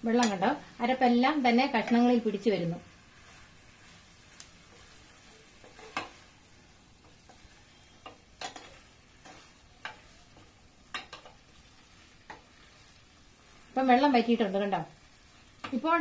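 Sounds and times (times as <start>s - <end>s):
faint sizzle: 0.0s - 16.0s
spatula scraping a pan: 2.9s - 6.4s, 7.0s - 13.8s.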